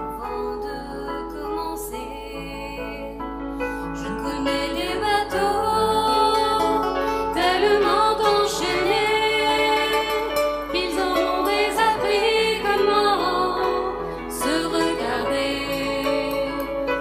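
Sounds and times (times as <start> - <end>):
instrumental accompaniment: 0.0 - 17.0
choir singing: 4.3 - 17.0.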